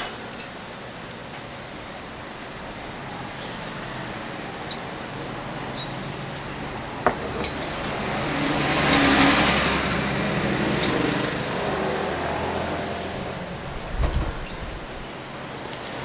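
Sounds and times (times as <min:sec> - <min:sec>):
vehicle passing: 0:07.4 - 0:15.2.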